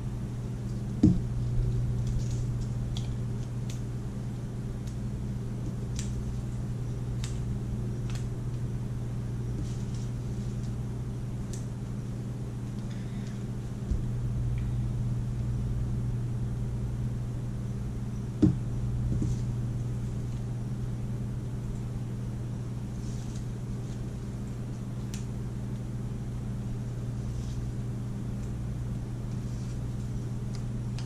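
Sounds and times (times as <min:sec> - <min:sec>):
appliance humming: 0:00.0 - 0:31.0.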